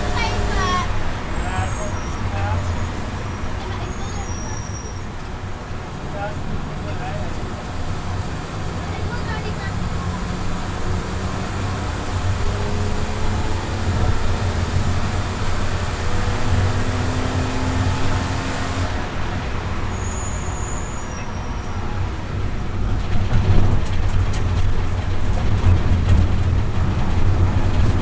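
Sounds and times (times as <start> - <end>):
car engine accelerating: 0.0 - 20.4
tyre and road noise: 0.0 - 28.0.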